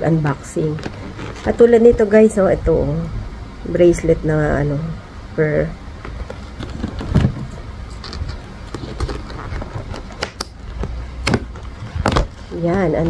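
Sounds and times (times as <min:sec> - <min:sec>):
paper bag rustling: 0:06.3 - 0:13.0.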